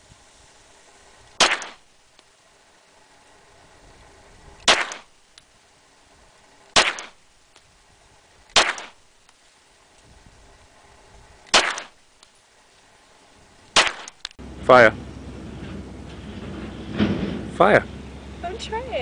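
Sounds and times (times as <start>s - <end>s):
pistol gunshots with echo: 1.4s - 1.8s, 4.6s - 5.1s, 6.7s - 7.2s, 8.5s - 9.0s, 11.5s - 12.0s, 13.8s - 14.2s.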